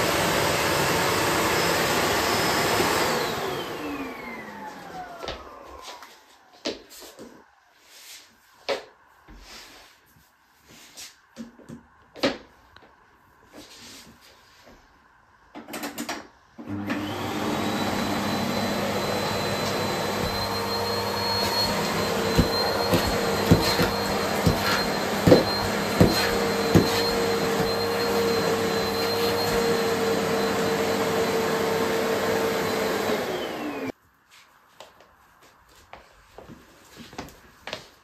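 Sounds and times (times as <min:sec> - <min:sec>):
vacuum cleaner whining: 0:00.0 - 0:08.2, 0:16.6 - 0:34.0.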